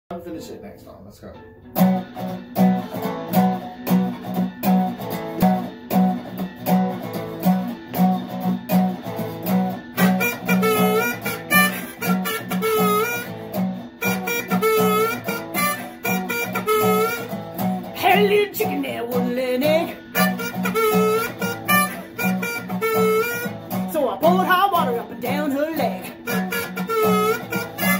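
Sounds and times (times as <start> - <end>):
acoustic guitar strumming blues: 1.4 - 27.9
harmonica bent notes: 9.3 - 27.9.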